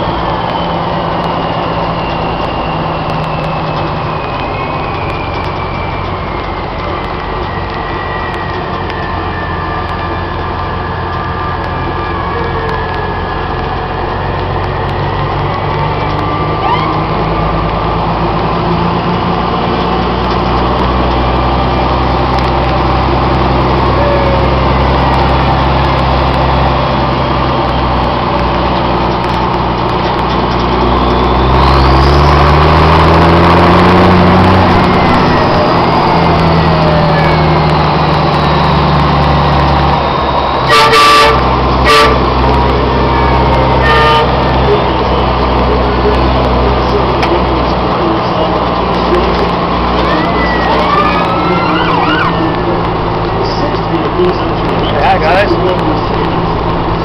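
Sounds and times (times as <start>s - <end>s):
truck engine running: 0.0s - 57.0s
vehicle horn toots: 40.6s - 42.3s, 43.1s - 44.6s.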